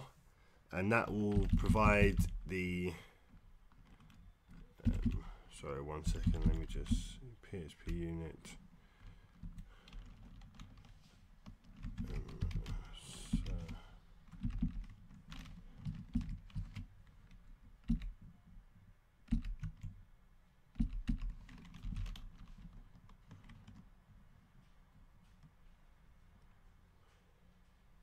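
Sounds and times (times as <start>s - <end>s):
typing on computer keyboard: 1.1s - 2.5s, 3.8s - 5.4s, 6.0s - 7.1s, 9.4s - 18.2s, 19.2s - 20.0s, 20.8s - 23.8s.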